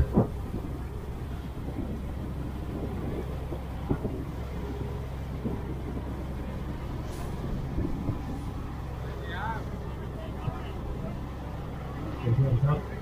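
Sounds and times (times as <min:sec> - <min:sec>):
hull knocking on waves: 0:00.0 - 0:08.9
boat engine running: 0:00.0 - 0:13.0
water rushing past hull: 0:00.0 - 0:13.0.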